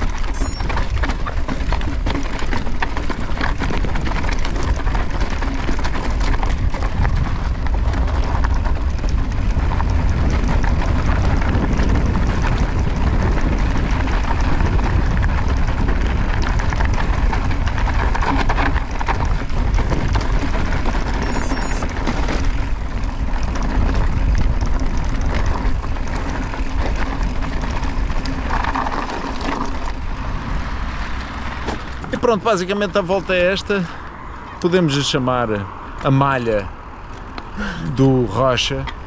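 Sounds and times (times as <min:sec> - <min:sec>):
wind rumble on microphone: 0:00.0 - 0:33.4
bike tyres and rattling knocks: 0:00.0 - 0:33.6.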